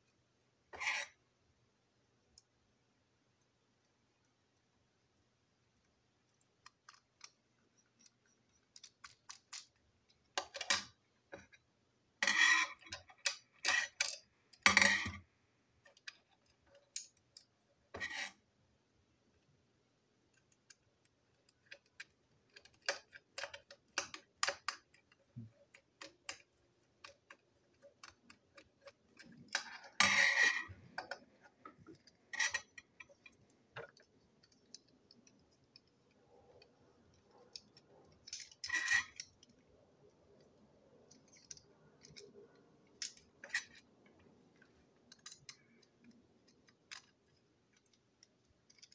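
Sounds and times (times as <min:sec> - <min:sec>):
plastic parts clicking: 0:06.2 - 0:11.6, 0:12.2 - 0:15.2, 0:20.3 - 0:48.9.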